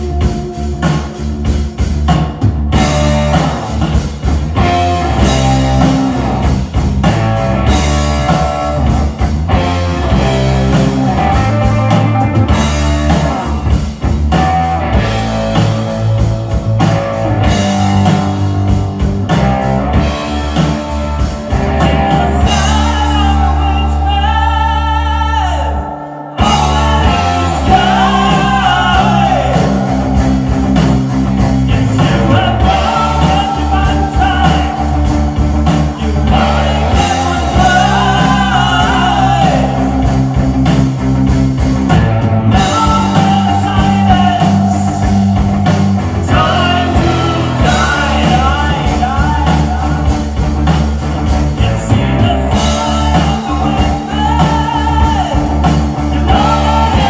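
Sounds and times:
distorted electric guitars: 0.0 - 57.0
drum kit: 0.0 - 57.0
person singing: 21.5 - 30.5, 31.6 - 40.4, 41.9 - 50.4, 51.5 - 57.0.

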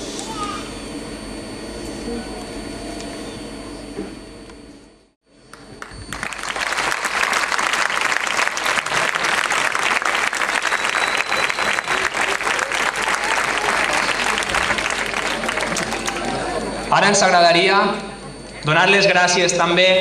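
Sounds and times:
crowd applauding: 5.5 - 16.9.

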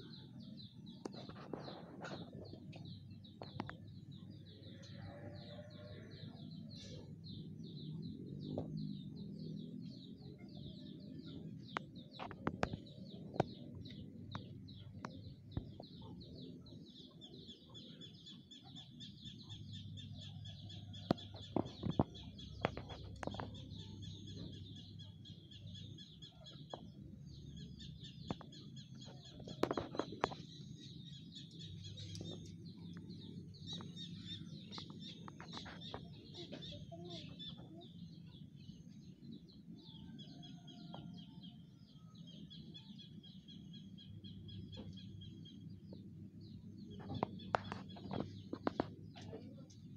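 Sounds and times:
birds chirping: 0.0 - 49.9.

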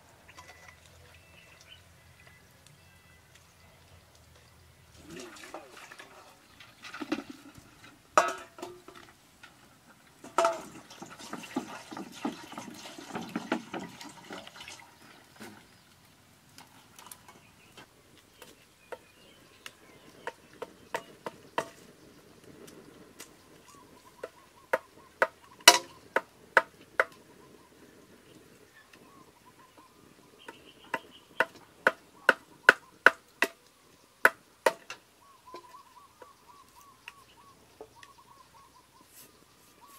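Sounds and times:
water sloshing in a wok: 4.9 - 15.9.

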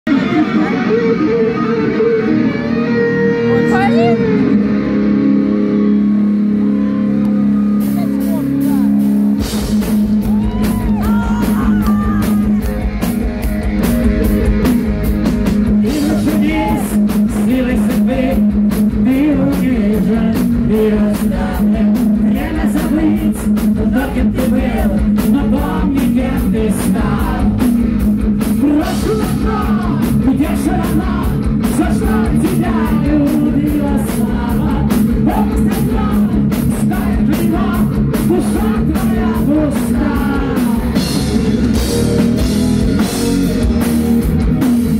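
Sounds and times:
bass guitar: 0.0 - 44.9
distorted electric guitar: 0.0 - 44.9
drum kit: 0.1 - 44.9
male singer: 15.7 - 27.8, 28.4 - 41.2.

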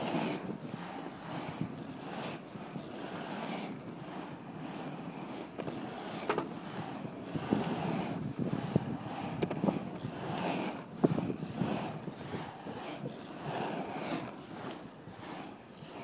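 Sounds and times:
skateboard clacks: 0.0 - 16.0
skateboard wheels rolling on concrete: 0.0 - 16.0
wind buffeting microphone: 6.3 - 13.5.

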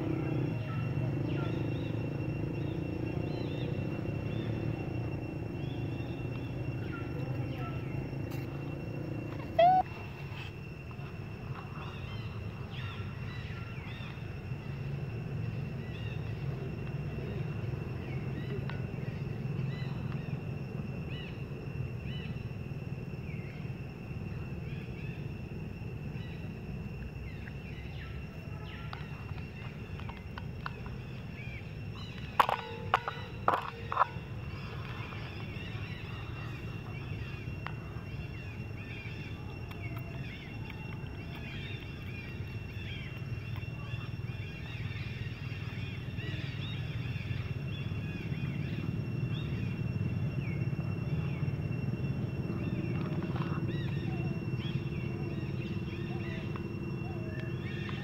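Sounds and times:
faint chirps: 0.0 - 22.6, 23.2 - 58.0
steady low hum: 0.0 - 58.0
short loud animal calls: 9.4 - 9.8.

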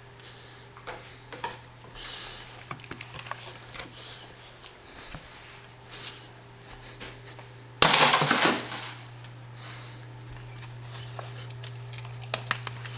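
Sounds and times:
frisbee crashing into wire rack: 7.8 - 9.1.

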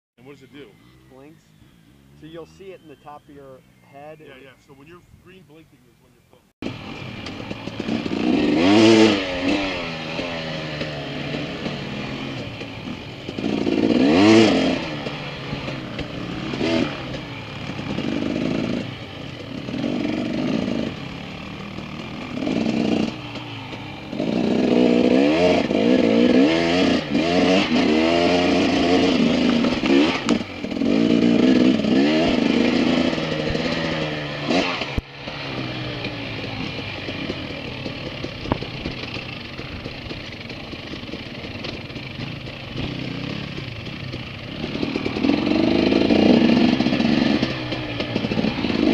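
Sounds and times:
dirt bike engines revving: 0.2 - 48.9.

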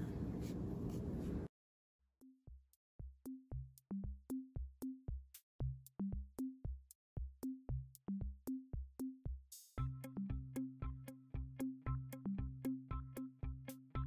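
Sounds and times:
drum machine beat: 2.2 - 14.0.

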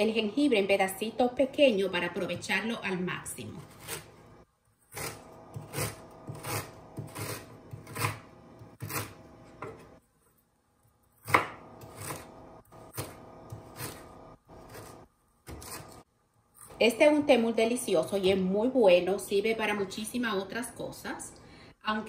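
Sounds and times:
knife slicing ginger: 3.4 - 4.2, 4.9 - 9.8, 11.2 - 16.0.

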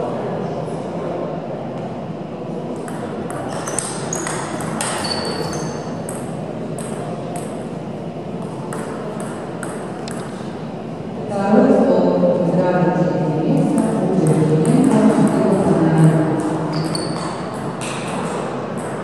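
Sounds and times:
table tennis ball hits: 2.8 - 7.6, 8.4 - 10.3, 16.4 - 19.0.

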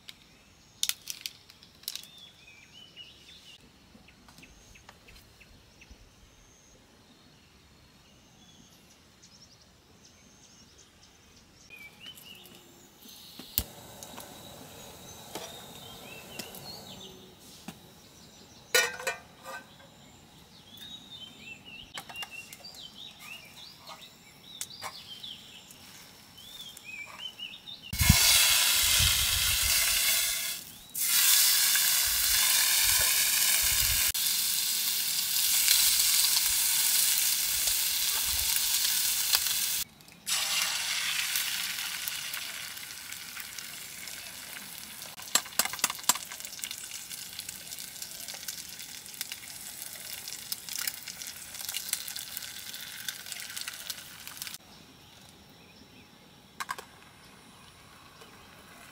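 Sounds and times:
crackling pops: 13.4 - 14.4
bacon sizzling in a frying pan: 28.0 - 54.6.

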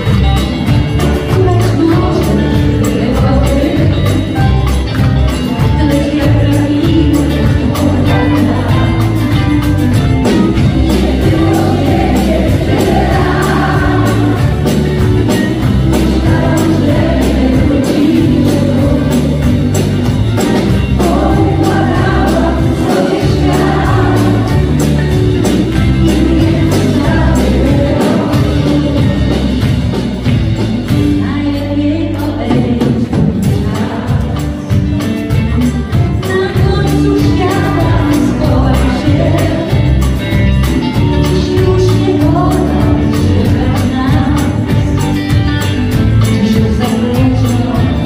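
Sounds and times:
bass: 0.0 - 48.0
drum kit beat: 0.0 - 48.0
electric guitar: 0.0 - 48.0
keyboards: 0.0 - 48.0
woman singing lead: 0.0 - 48.0
backing vocal: 10.2 - 29.7.

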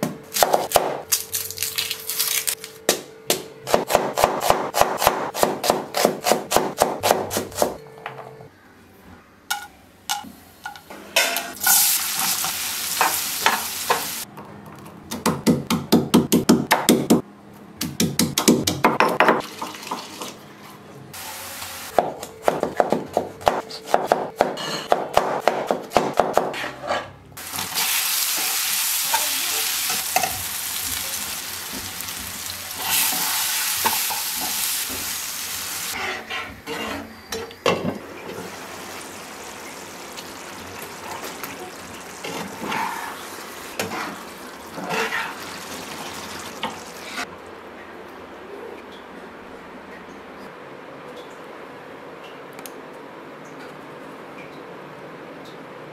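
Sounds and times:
sizzling in hot oil: 11.6 - 14.2, 27.4 - 36.0, 38.5 - 47.2
pestle pounding in stone mortar: 17.8 - 19.5
spoon scraping and stirring: 44.8 - 45.5.

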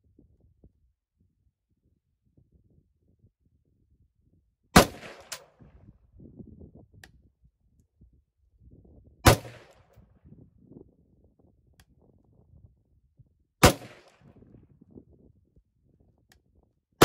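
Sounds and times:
rifle shots: 4.8 - 5.5, 9.3 - 9.7, 13.6 - 14.2.

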